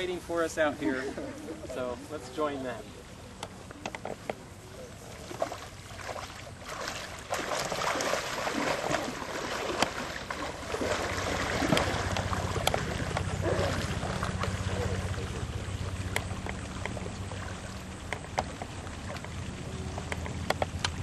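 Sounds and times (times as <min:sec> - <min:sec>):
legs splashing through water: 0:04.8 - 0:21.0.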